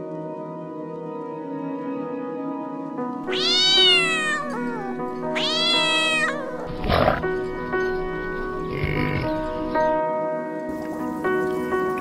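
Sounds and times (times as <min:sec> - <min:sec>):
background music: 0:00.0 - 0:12.0
cat meowing: 0:03.2 - 0:06.9.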